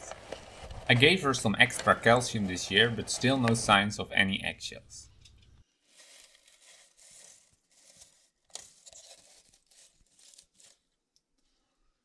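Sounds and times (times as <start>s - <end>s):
dry nest fibres rustling: 5.8s - 10.9s.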